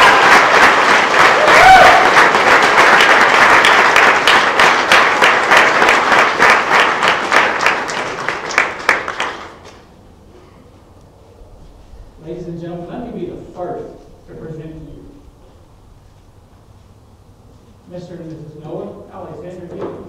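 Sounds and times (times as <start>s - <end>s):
guests applauding: 0.0s - 9.8s.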